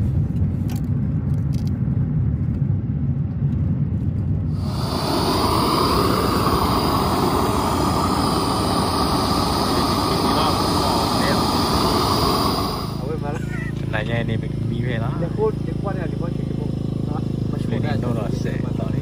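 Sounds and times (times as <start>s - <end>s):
vehicle rumbling: 0.0s - 19.0s
loud rushing hiss: 4.5s - 14.0s.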